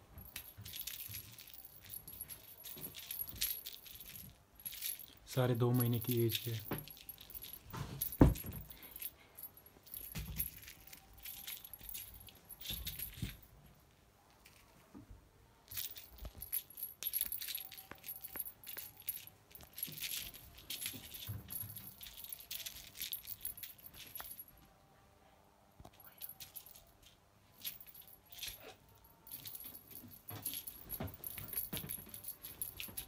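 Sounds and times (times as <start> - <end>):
toy jingling rattle: 0.1 - 13.4, 15.7 - 24.5, 26.0 - 33.0
dull thump: 7.7 - 8.7.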